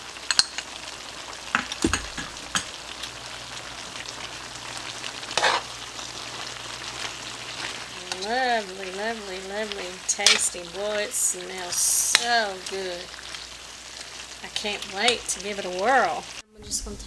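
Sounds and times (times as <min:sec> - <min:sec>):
food sizzling in a wok: 0:00.0 - 0:17.0
spatula scraping pan: 0:05.2 - 0:05.8.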